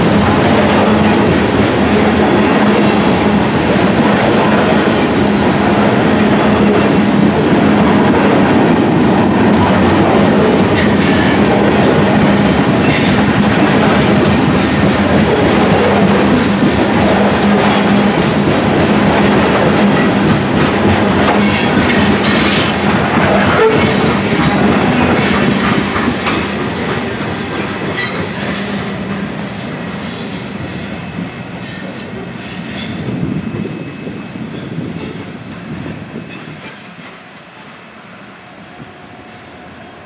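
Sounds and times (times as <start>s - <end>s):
train wheels clacking over rail joints: 0.0s - 33.0s
train wheel squeals: 10.7s - 11.5s, 23.5s - 26.6s, 27.6s - 37.2s, 39.1s - 39.8s.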